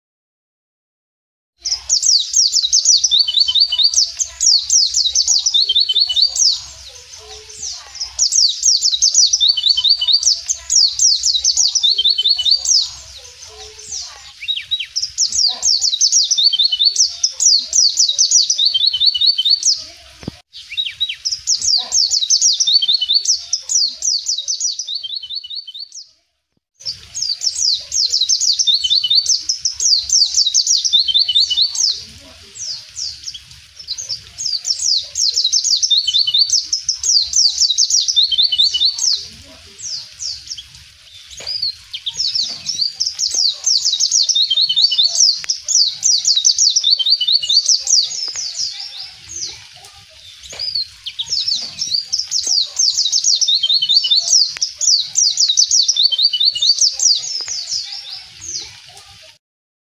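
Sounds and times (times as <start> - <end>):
bird twittering: 1.6 - 26.1, 26.8 - 49.6, 50.2 - 58.7.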